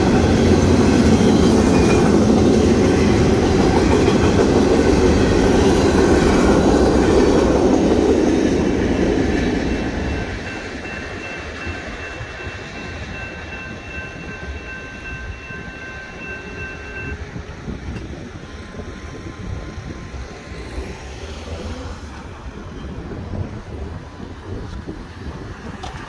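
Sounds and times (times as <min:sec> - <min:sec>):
freight train rumbling: 0:00.0 - 0:26.0
steady high ringing tone: 0:08.6 - 0:17.4
wind rumble on microphone: 0:17.0 - 0:26.0.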